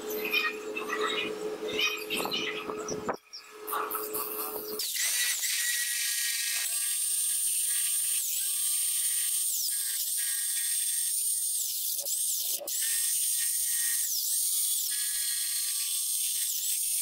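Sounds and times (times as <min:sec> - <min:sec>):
electric jigsaw cutting wood: 0:03.9 - 0:17.0.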